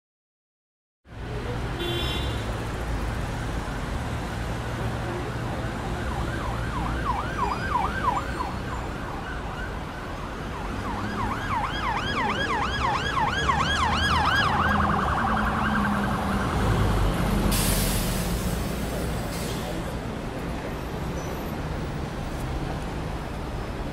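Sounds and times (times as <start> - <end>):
low traffic rumble: 1.0 - 23.9
emergency vehicle siren yelping: 5.7 - 16.7.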